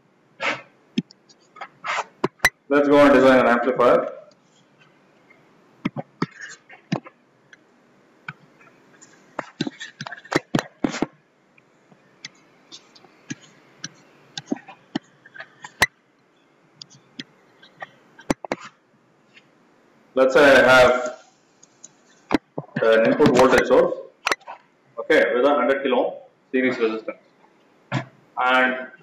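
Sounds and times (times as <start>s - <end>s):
faint stylus scratching: 12.0s - 15.9s.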